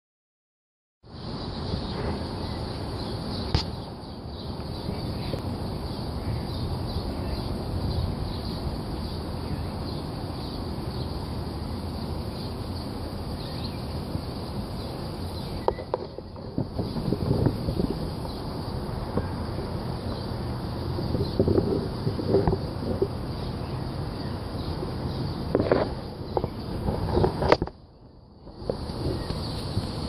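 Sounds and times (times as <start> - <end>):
sharp click: 3.5 - 3.8.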